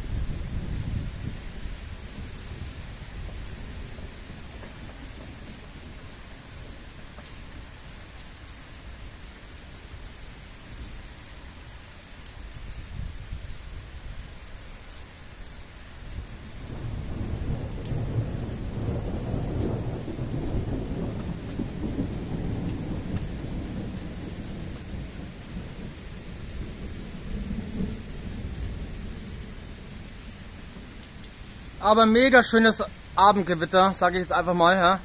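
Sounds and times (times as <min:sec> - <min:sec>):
steady rain: 0:00.0 - 0:35.0
rolling thunder: 0:16.6 - 0:30.1.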